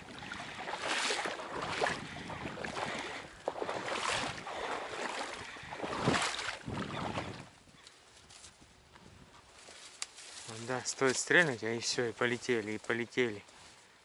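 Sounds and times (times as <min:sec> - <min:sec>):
marsh water sloshing: 0:00.0 - 0:07.6
reeds rustling: 0:07.8 - 0:14.0.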